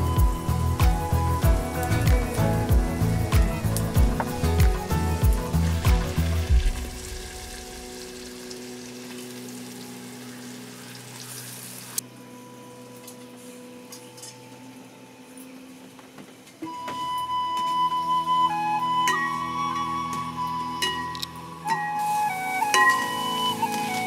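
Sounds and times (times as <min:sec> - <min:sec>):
flute tune: 0:00.0 - 0:10.8, 0:16.6 - 0:24.0
onions sizzling in hot oil: 0:02.5 - 0:12.0, 0:21.9 - 0:24.0.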